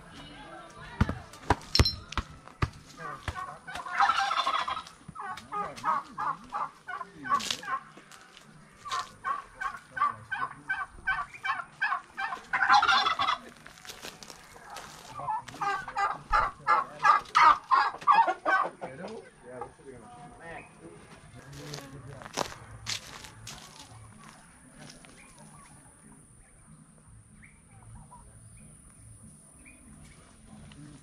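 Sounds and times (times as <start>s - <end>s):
domestic fowl calling rapidly: 3.7s - 7.9s, 8.8s - 13.5s.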